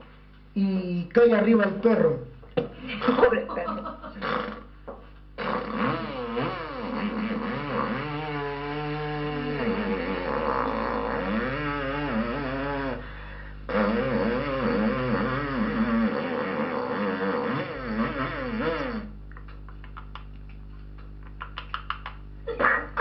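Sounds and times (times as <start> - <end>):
man imitating a chainsaw: 4.2 - 4.7, 5.4 - 13.1, 13.7 - 19.2
sharp vocal clicks: 19.4 - 22.8.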